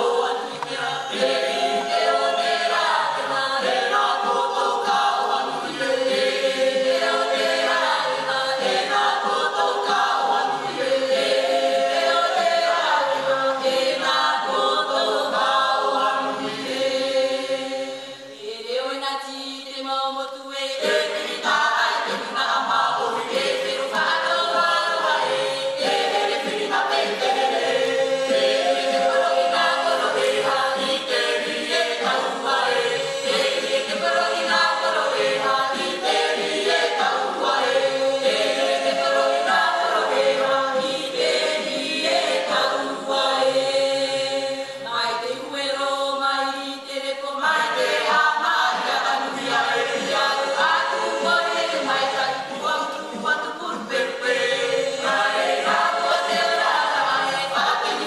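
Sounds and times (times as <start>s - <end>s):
choir singing a cappella: 0.0s - 58.0s.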